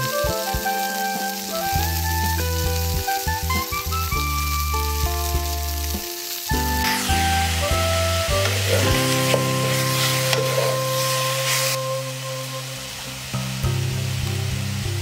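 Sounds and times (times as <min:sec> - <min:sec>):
background music: 0:00.0 - 0:15.0
meat sizzling in a hot pan: 0:00.0 - 0:15.0
wooden spatula scraping: 0:06.8 - 0:12.0.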